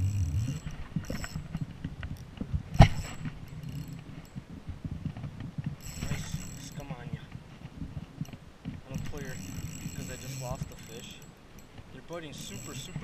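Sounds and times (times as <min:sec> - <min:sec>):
reel ticks: 0:05.8 - 0:07.1, 0:08.2 - 0:13.0.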